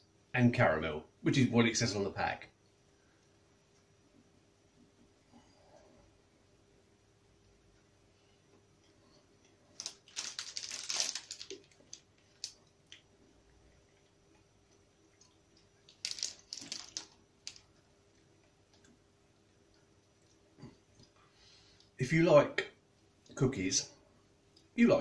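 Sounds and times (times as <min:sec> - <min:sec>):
plastic wrapper crinkling: 0:09.7 - 0:13.0, 0:15.2 - 0:17.7.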